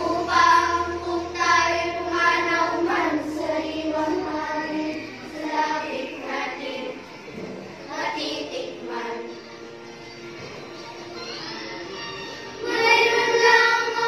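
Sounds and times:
child singing: 0.0 - 7.0, 12.6 - 14.0
light musical backing: 0.0 - 14.0.

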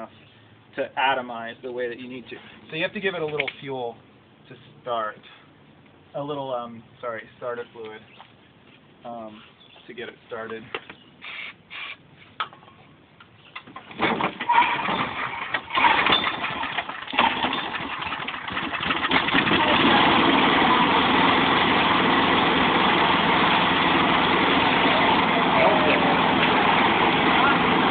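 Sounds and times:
lawn mower engine running: 13.8 - 27.9
pull-cord cranking: 13.9 - 19.8.

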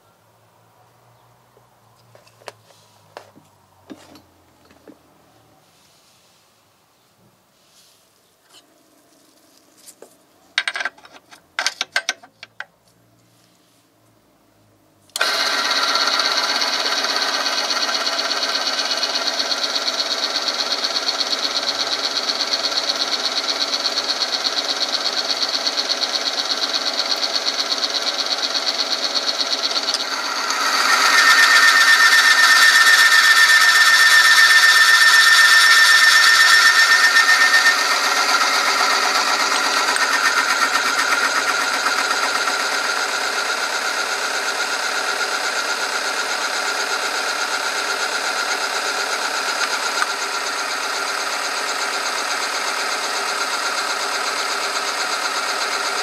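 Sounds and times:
electric motor running: 15.2 - 56.0
high squeal of roller: 30.3 - 42.6.

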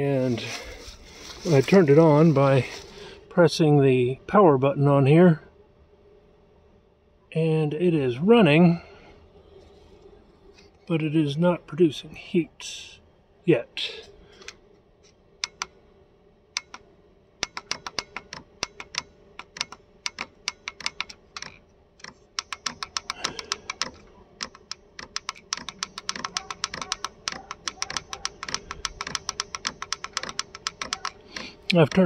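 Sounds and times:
faint steady hum: 0.0 - 32.0
fuel pump ticking: 15.4 - 15.8, 16.6 - 32.0.

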